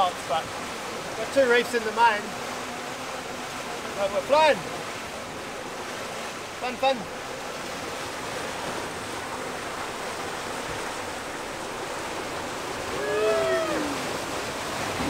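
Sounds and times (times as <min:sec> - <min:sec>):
water rushing past hull: 0:00.0 - 0:15.0
person whooping: 0:12.9 - 0:14.1.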